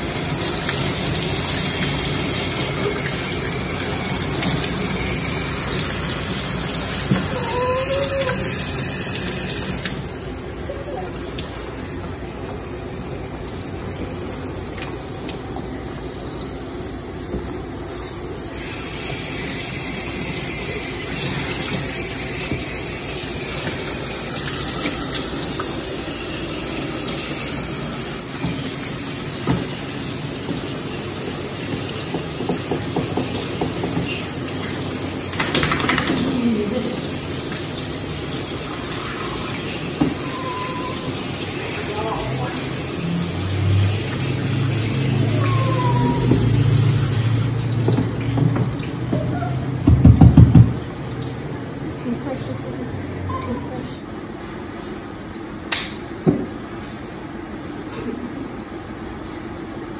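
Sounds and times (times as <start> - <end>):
water spraying from hose: 0.0 - 49.8.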